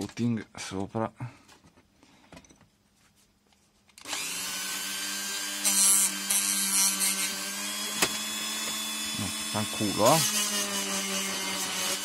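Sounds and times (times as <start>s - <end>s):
rotary tool humming: 4.0s - 12.0s.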